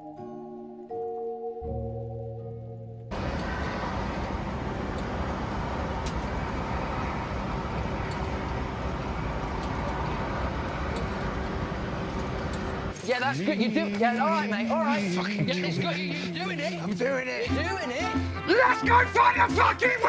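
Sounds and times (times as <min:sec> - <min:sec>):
industrial noise: 0:03.1 - 0:17.3
road traffic rumble: 0:03.1 - 0:18.5.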